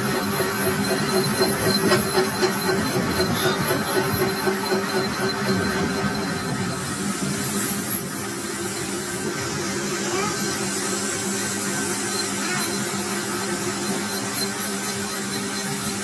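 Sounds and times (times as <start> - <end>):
metal lathe humming: 0.0 - 16.0
hiss of cutting tool: 6.2 - 16.0.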